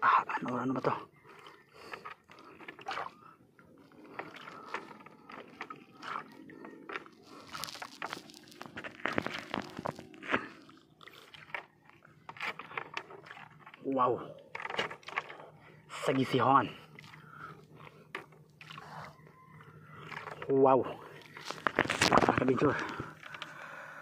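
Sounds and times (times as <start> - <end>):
scrapes knocks and crackles: 14.5 - 15.5.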